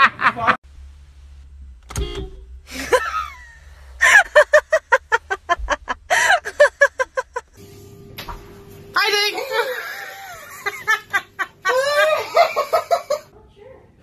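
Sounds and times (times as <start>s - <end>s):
hearty laughter: 2.7s - 7.6s, 9.6s - 13.3s
woman crying out: 11.6s - 12.5s.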